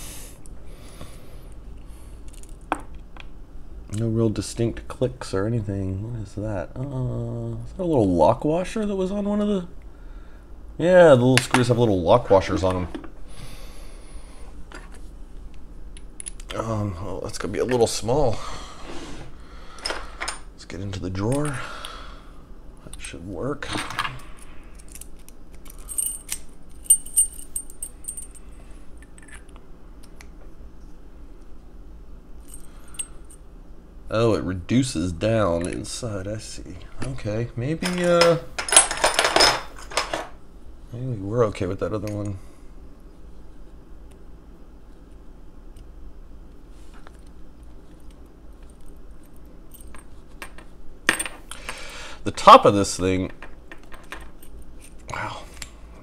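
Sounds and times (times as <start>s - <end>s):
steady low hum: 0.0s - 56.0s
metal tool clinking on padlock: 24.8s - 28.4s.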